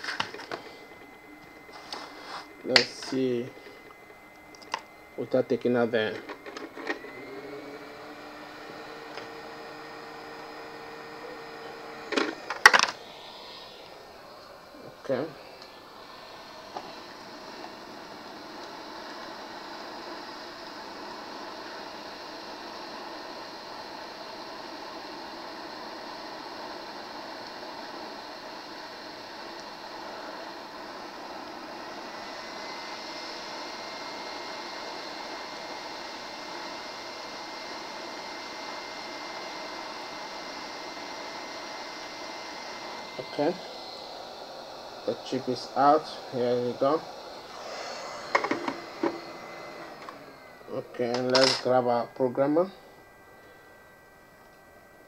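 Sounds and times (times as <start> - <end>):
electrical hum: 0.0 - 55.0
hot air station hissing: 0.0 - 55.0
faint high steady tone: 50.6 - 55.0.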